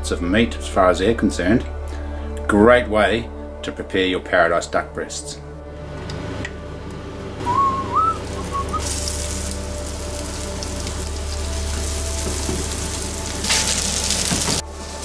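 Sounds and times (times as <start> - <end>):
low hum: 5.4 - 15.0
short wavering whistle: 7.4 - 9.6
meat sizzling in oil: 8.1 - 15.0.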